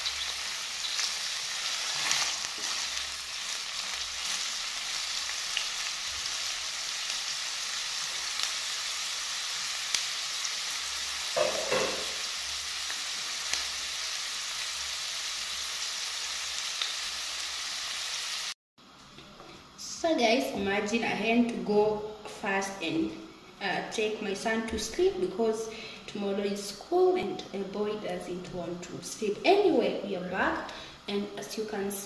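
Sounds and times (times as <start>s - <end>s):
onions sizzling in oil: 0.0s - 18.6s.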